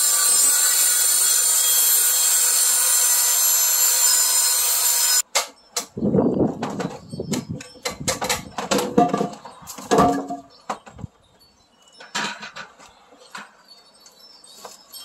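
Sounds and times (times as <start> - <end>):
wood post and saw clattering: 5.2 - 11.2, 12.0 - 13.8.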